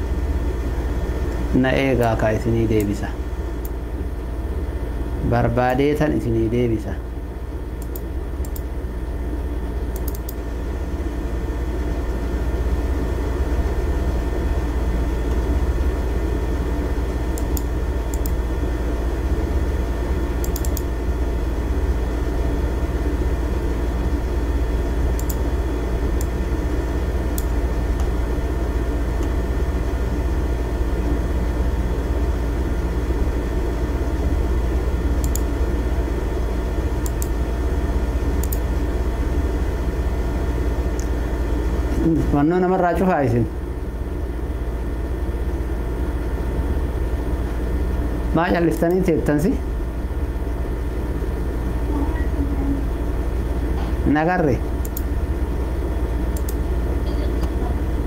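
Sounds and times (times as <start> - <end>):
low machine hum with whine: 0.0 - 58.0
computer mouse clicks: 7.8 - 8.7, 9.9 - 10.4, 17.3 - 18.4, 20.4 - 20.9, 25.2 - 25.4, 27.3 - 28.1, 35.2 - 35.5, 37.0 - 37.4, 38.4 - 38.7, 54.8 - 55.1, 56.3 - 56.6.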